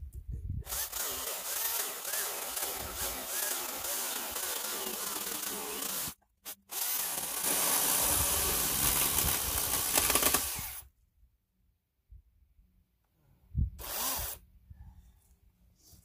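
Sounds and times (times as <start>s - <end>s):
electric chainsaw cutting log: 0.7s - 10.9s, 13.8s - 14.4s.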